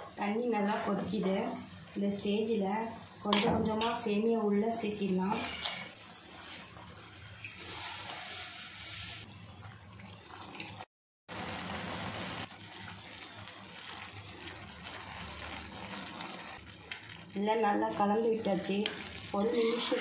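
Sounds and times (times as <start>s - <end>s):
water boiling in a pan: 0.0s - 20.0s
ladle stirring: 19.4s - 20.0s.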